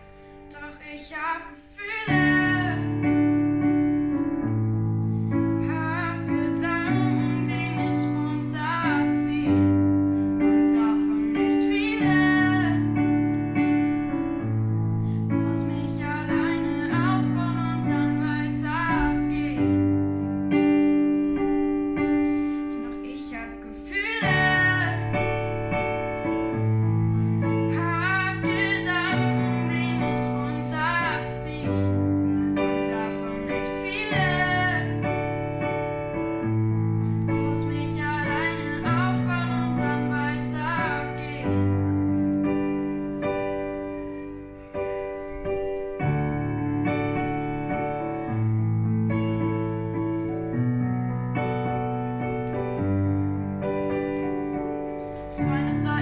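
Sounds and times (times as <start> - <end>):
digital piano chords: 0.0 - 56.0
girl singing: 0.5 - 3.3, 5.6 - 13.1, 15.3 - 20.0, 22.0 - 25.3, 27.6 - 35.4, 37.4 - 42.0, 55.3 - 56.0.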